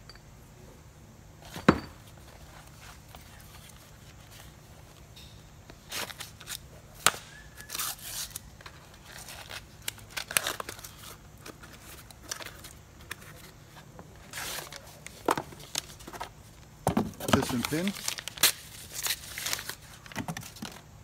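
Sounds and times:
cardboard crinkling and tearing: 7.6 - 13.5, 17.1 - 20.8.

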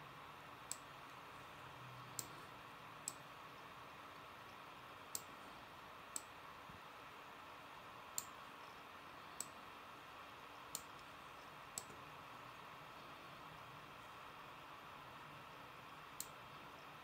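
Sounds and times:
faint steady hiss: 0.0 - 17.0
computer mouse clicking: 0.7 - 0.9, 2.1 - 2.4, 3.0 - 3.2, 5.1 - 5.3, 6.1 - 6.3, 10.7 - 11.1, 11.7 - 12.0, 16.2 - 16.4.

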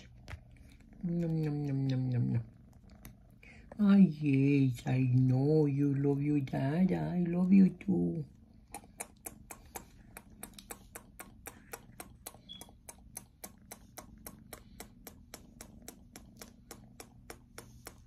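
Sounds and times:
low steady hum: 0.0 - 18.0
rapid faint clicking: 8.7 - 18.0.

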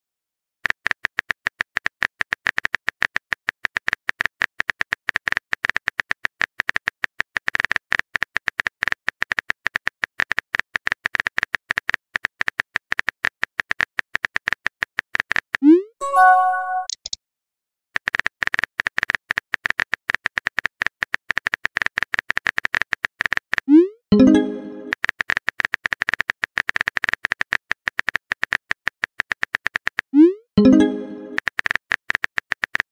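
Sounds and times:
keyboard typing clicks: 16.0 - 17.2, 24.1 - 25.0, 30.6 - 31.6.

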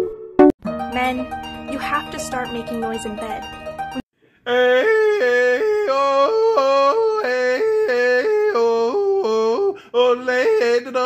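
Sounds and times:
person yodeling: 4.5 - 11.0.

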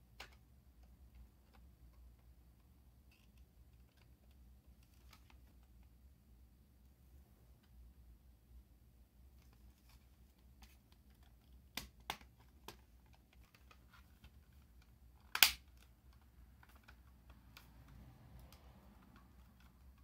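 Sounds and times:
plastic shell snapping: 15.3 - 15.9.

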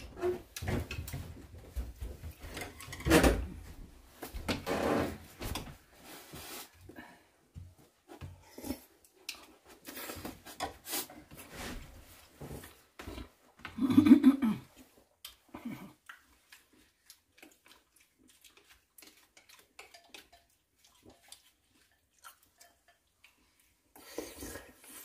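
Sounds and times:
chewing: 14.8 - 25.0.

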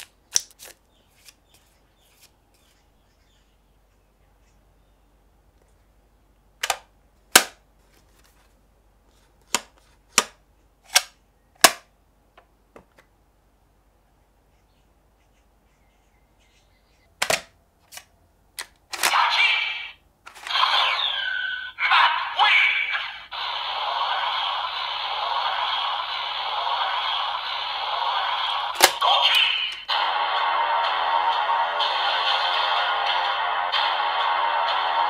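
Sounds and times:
electronic toy sound effects: 19.0 - 35.0.

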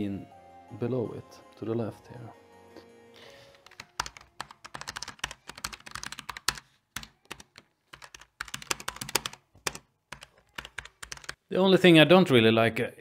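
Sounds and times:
mechanical keyboard typing: 3.5 - 11.4.

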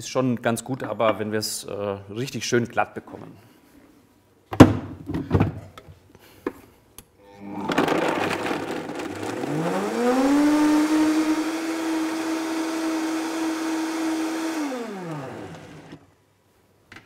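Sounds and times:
blender blending: 7.4 - 16.1.

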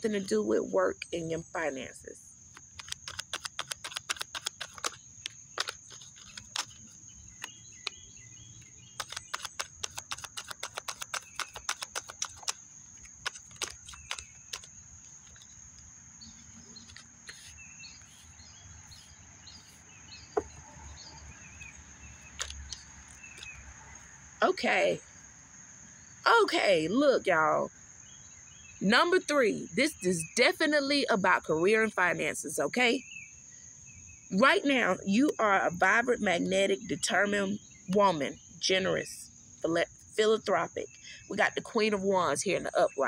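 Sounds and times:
birds chirping: 0.0 - 43.0
insect trill: 0.0 - 43.0
cards being shuffled: 2.6 - 5.0, 5.6 - 7.5, 9.0 - 15.5, 16.8 - 18.3, 21.6 - 24.1.

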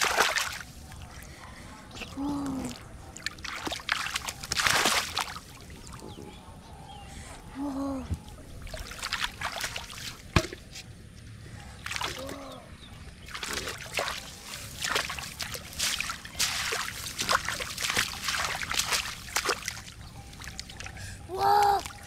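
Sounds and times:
hands splashing in muddy water: 0.0 - 1.0, 2.0 - 5.8, 8.6 - 10.7, 11.8 - 12.6, 13.2 - 22.0.

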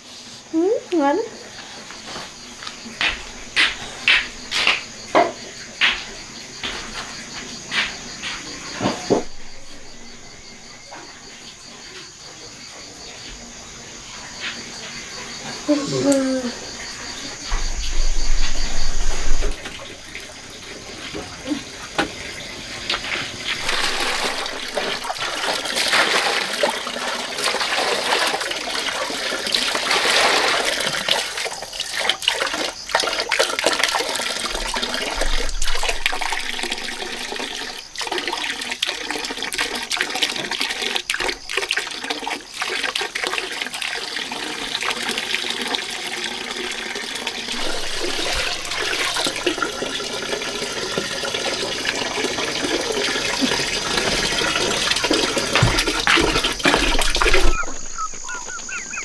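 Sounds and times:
water poured splashing into basins: 1.4 - 12.1, 14.1 - 59.0
containers knocking: 2.2 - 11.5, 21.0 - 26.9, 33.8 - 38.4, 47.5 - 59.0
low rumble: 17.6 - 19.6.

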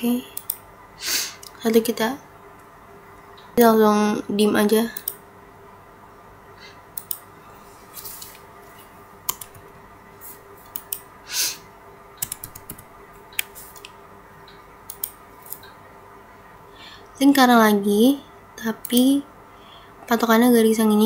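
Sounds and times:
computer mouse clicks: 0.4 - 0.6, 5.0 - 5.2, 7.0 - 7.3, 9.3 - 9.7, 10.6 - 11.1, 12.2 - 15.8, 18.8 - 19.1
keyboard clicks: 0.4 - 0.6, 5.0 - 5.2, 7.0 - 7.3, 9.2 - 9.7, 10.6 - 11.1, 12.2 - 15.7.

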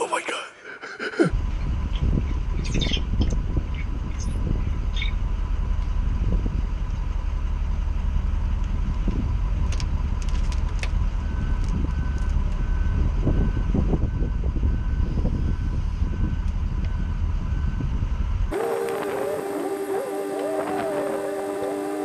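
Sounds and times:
diesel engine running: 0.9 - 22.0
backup alarm beeping: 11.3 - 22.0.

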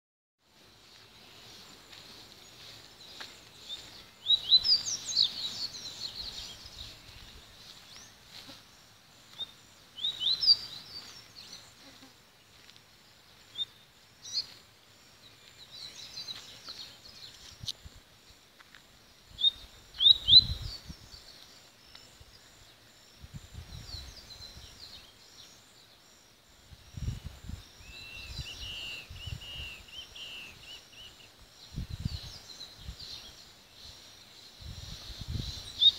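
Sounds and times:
bird chirping and trilling: 19.4 - 20.9.

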